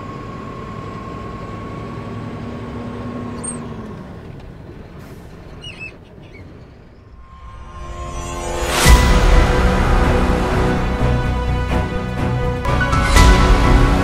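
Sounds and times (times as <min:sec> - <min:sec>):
diesel truck engine running: 0:00.0 - 0:07.3.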